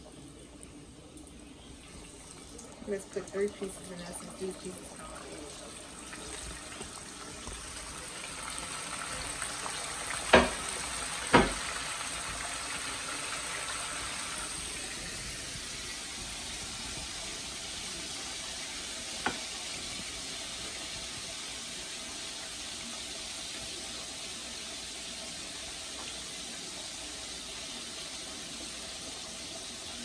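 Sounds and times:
oil bubbling sizzle: 0:00.0 - 0:30.0
loud sharp knocks: 0:11.3 - 0:11.6.

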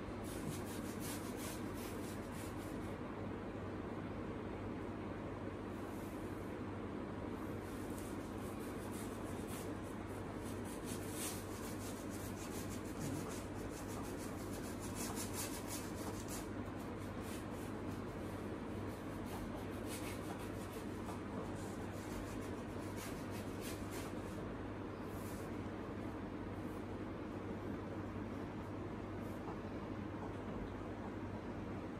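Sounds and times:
steady low hum: 0:00.0 - 0:31.9
paintbrush scrubbing panel: 0:00.2 - 0:02.9, 0:07.5 - 0:24.4.

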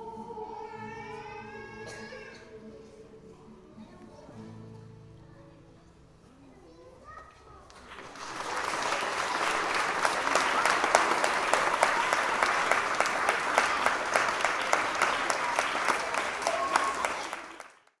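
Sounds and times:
crowd applause: 0:07.8 - 0:18.0.

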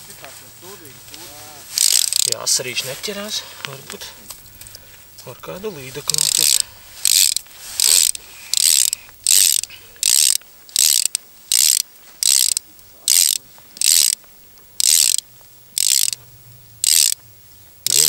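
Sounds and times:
fishing reel ratchet clicking: 0:01.7 - 0:02.4, 0:06.0 - 0:14.2, 0:14.8 - 0:16.2, 0:16.8 - 0:17.2, 0:17.8 - 0:18.0.

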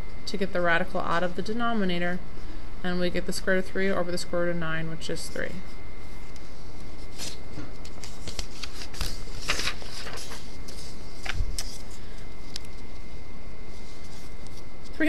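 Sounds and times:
paper rustling: 0:06.0 - 0:15.0.

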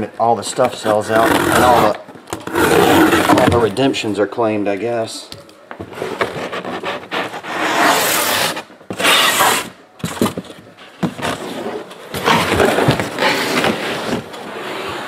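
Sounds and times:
cardboard scraping and tearing: 0:00.8 - 0:03.8, 0:05.9 - 0:10.4.

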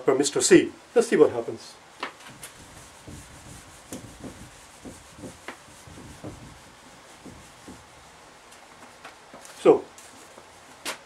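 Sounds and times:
eraser rubbing on whiteboard: 0:02.3 - 0:08.1.

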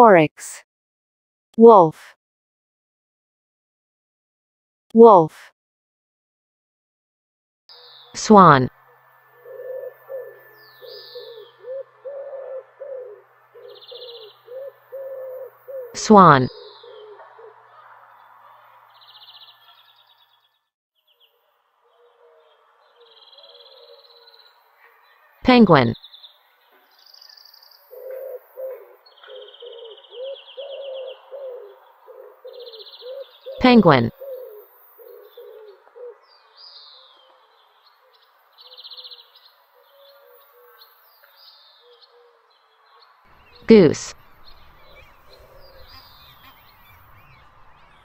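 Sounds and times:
bird low hooting calls: 0:08.8 - 0:20.5, 0:21.8 - 0:25.4, 0:26.9 - 0:48.0
small bird chirping and trilling: 0:09.5 - 0:11.8
swans calling: 0:44.2 - 0:48.0.

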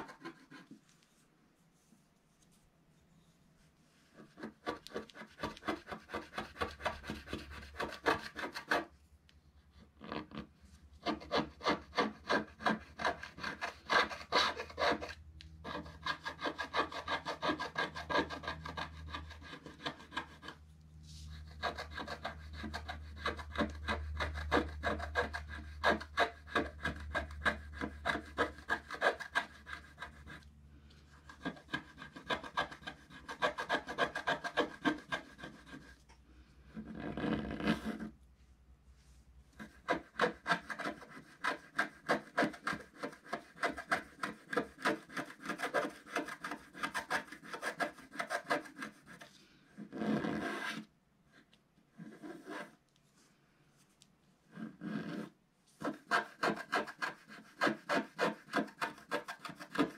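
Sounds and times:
stylus scratching card: 0:00.0 - 0:00.8, 0:04.1 - 0:08.8, 0:21.3 - 0:30.4, 0:31.2 - 0:36.0, 0:39.6 - 0:49.3, 0:54.5 - 0:59.9.

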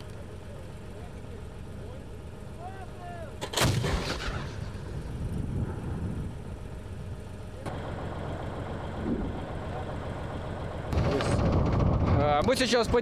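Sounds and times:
anti-aircraft gun shot with echo: 0:03.4 - 0:05.0, 0:10.9 - 0:13.0.

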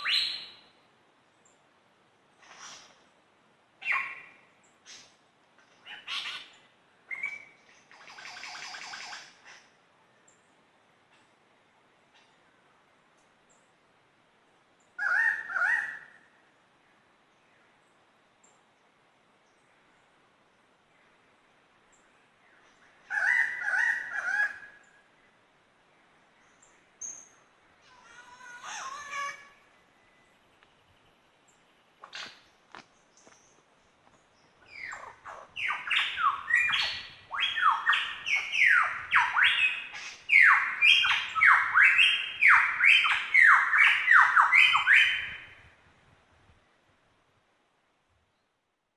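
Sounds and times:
lyrebird singing varied calls: 0:05.8 - 0:09.7, 0:23.0 - 0:25.0, 0:27.0 - 0:30.3, 0:34.6 - 0:45.6
lyrebird rasping calls: 0:27.8 - 0:29.6.

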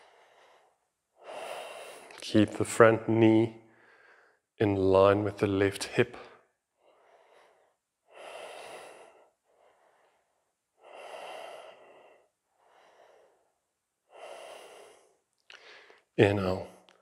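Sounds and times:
man breathing deeply: 0:00.0 - 0:02.2, 0:03.6 - 0:04.5, 0:06.4 - 0:16.6.

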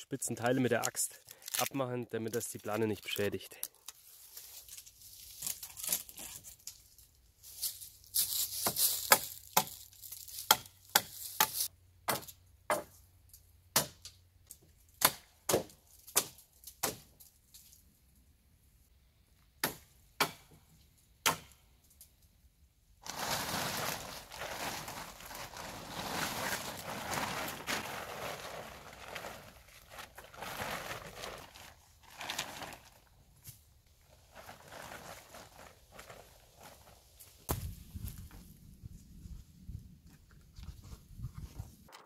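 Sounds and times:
tarp rustling: 0:07.4 - 0:10.5, 0:23.0 - 0:38.5
axe chopping wood: 0:10.5 - 0:13.0, 0:13.7 - 0:14.1, 0:15.0 - 0:17.1, 0:19.6 - 0:20.6, 0:21.2 - 0:21.6.

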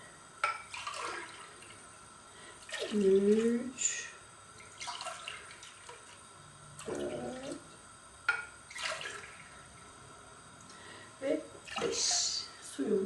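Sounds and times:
water pouring from a jug: 0:00.7 - 0:01.8, 0:04.6 - 0:06.1, 0:08.7 - 0:09.6.

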